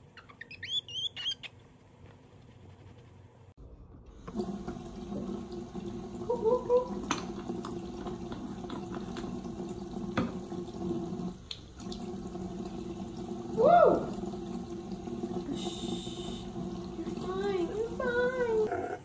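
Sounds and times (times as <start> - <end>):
faucet water splashing into basin: 4.2 - 18.6.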